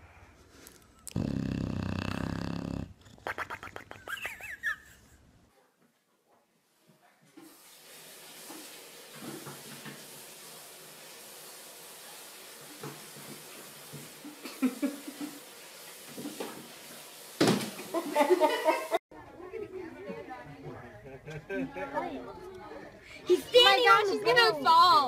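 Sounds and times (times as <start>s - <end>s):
room hiss: 7.4s - 19.0s.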